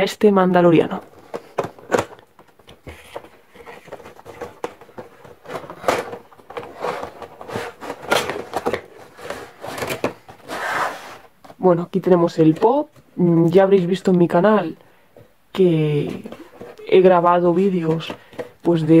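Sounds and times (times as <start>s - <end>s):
cardboard and plastic clicks and scrapes: 0.9s - 11.6s, 17.6s - 19.0s.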